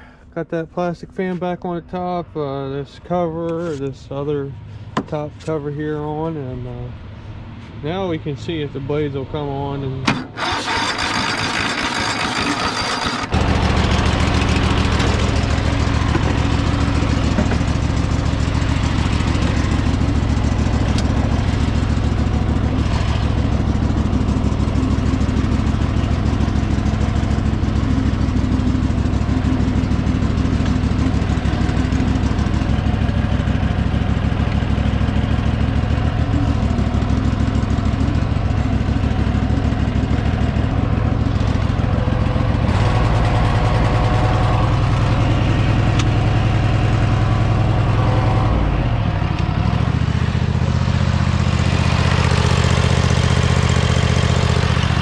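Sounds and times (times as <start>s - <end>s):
lawn mower engine running: 9.2s - 55.0s.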